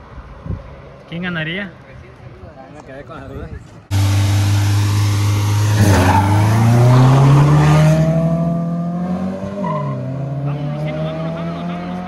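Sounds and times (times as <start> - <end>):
car engines accelerating: 3.9 - 12.0.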